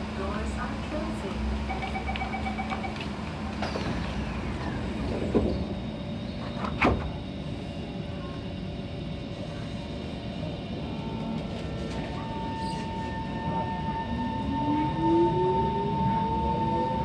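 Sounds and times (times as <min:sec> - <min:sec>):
low train hum: 0:00.0 - 0:17.0
two-pitch door warning beeping: 0:01.6 - 0:03.9
train doors knocking shut: 0:06.4 - 0:07.3.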